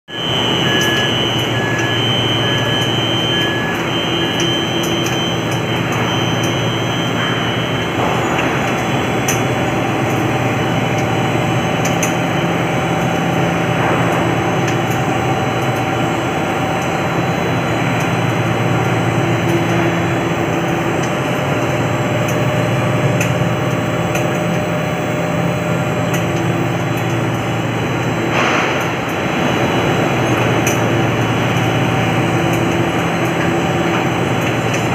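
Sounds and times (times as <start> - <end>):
faint high beeps: 0.1 - 7.9
machinery rumbling and humming: 0.1 - 34.9.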